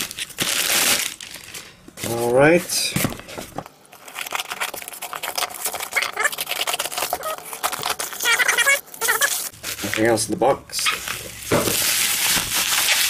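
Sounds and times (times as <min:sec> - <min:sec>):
cardboard and tape ripping: 0:04.0 - 0:10.2, 0:10.9 - 0:13.0.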